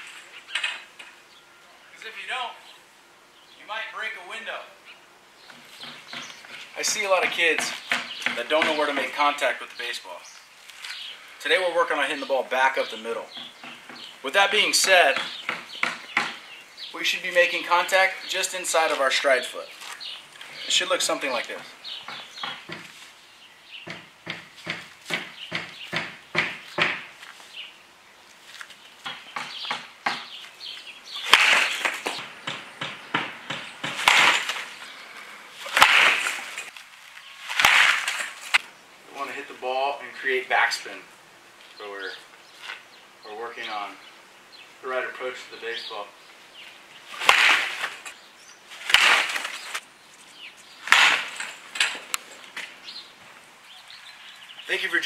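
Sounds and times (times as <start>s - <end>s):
baseball bat cracking a ball: 31.2s - 34.8s, 35.6s - 36.7s, 37.5s - 38.7s, 47.2s - 48.2s, 48.8s - 49.8s, 50.8s - 51.5s.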